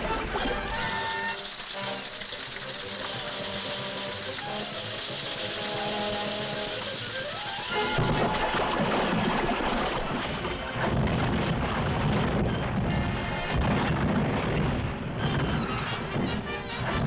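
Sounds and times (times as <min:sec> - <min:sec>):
cartoon music: 0:00.4 - 0:09.1
bridge collapsing rumbling crash: 0:07.8 - 0:15.5.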